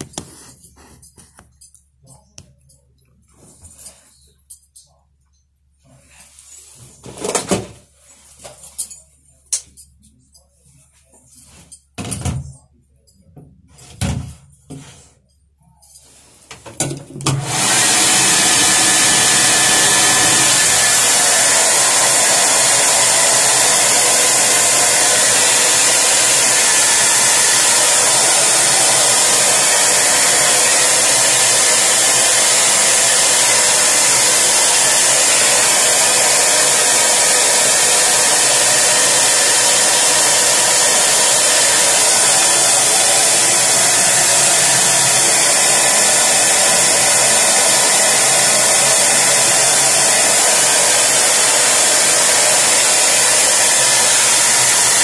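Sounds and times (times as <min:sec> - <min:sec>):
electric fan rushing: 0:17.3 - 0:55.0.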